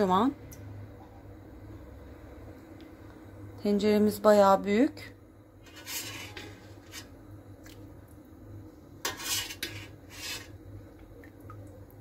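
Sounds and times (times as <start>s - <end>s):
low steady hum: 0.0s - 12.0s
spoon scraping steel pot: 5.6s - 7.2s, 9.0s - 10.6s.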